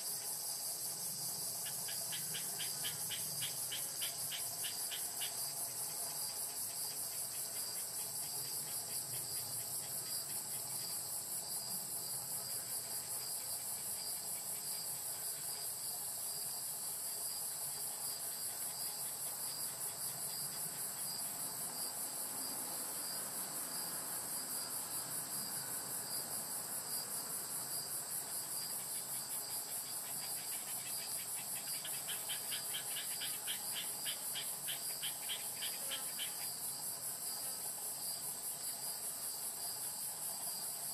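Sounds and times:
insects high trill: 0.0 - 11.3, 28.6 - 39.0
lower rapid insect trill: 0.0 - 40.9.

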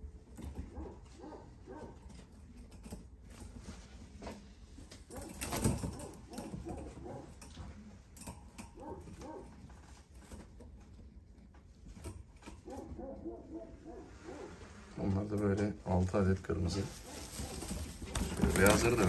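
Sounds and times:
pigeons cooing: 5.1 - 7.9, 12.4 - 15.0.

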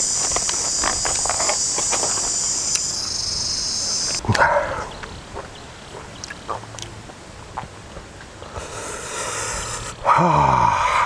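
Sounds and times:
insects buzzing: 0.0 - 7.0, 8.2 - 10.8
chewing clicks and smacks: 4.1 - 7.7.

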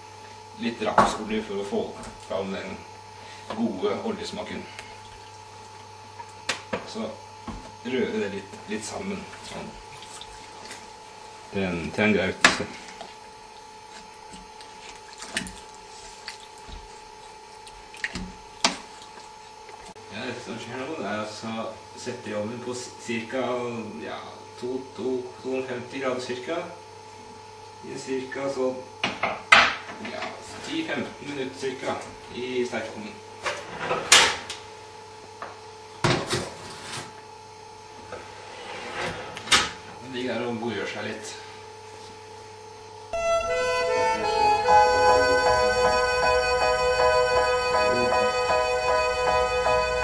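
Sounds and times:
steady hum: 0.0 - 28.9, 37.3 - 50.0
spoon stirring wet mixture: 11.8 - 20.0.

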